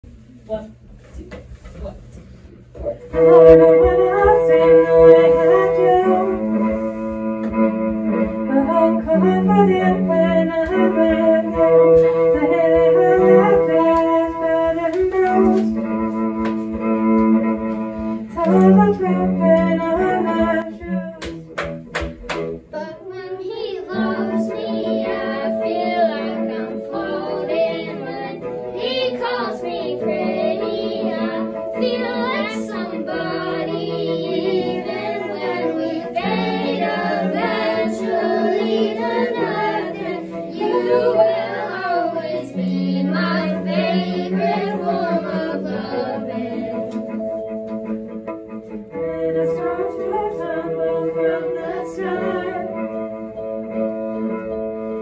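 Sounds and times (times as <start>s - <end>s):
cello and keyboard chords: 2.8s - 55.0s
young singers' voices: 3.1s - 7.0s, 8.4s - 15.9s, 22.7s - 47.6s, 48.7s - 53.6s.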